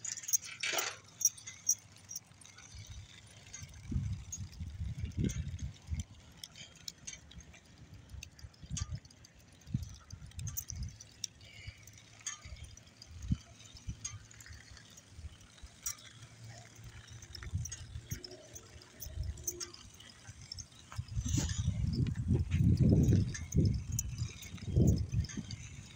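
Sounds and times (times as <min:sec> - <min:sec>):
faint ticks: 0:00.0 - 0:25.9
wind buffeting microphone: 0:02.8 - 0:06.2, 0:07.4 - 0:11.2, 0:16.8 - 0:25.9.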